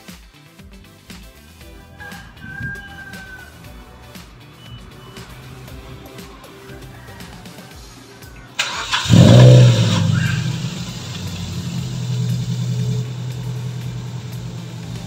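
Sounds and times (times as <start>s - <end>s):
car engine starting and idling: 3.6s - 7.0s, 8.6s - 15.0s.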